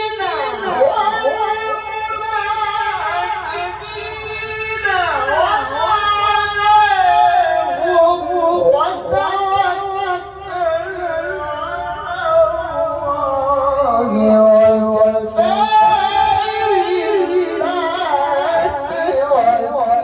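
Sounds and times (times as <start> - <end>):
man chanting through loudspeakers: 0.0 - 20.0.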